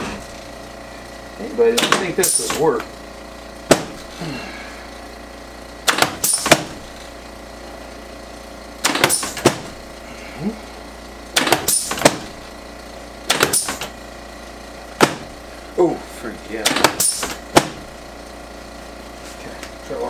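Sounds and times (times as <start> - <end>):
steady low hum: 0.0 - 20.0
sharp knocks: 1.8 - 2.8, 3.6 - 4.1, 5.8 - 6.9, 8.8 - 9.8, 11.4 - 12.4, 13.3 - 13.9, 15.0 - 15.4, 16.6 - 17.9.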